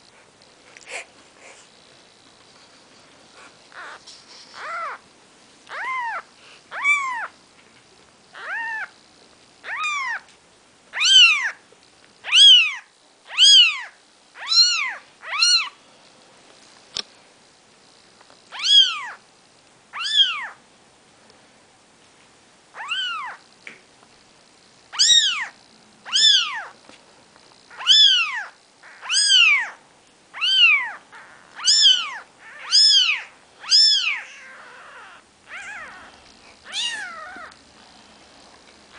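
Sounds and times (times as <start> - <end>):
kittens mewing: 3.3 - 5.0, 5.7 - 7.4, 8.3 - 9.0, 9.6 - 10.3, 11.0 - 11.6, 12.2 - 15.8, 24.9 - 26.8, 27.7 - 29.8, 30.4 - 37.6.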